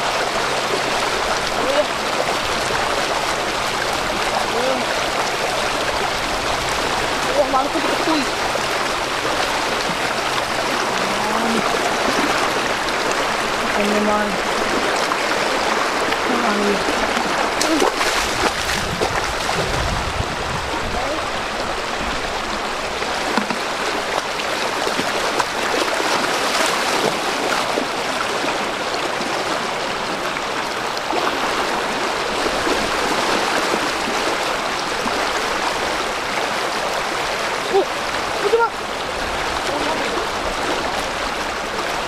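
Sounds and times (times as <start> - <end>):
river water rushing: 0.0 - 42.0.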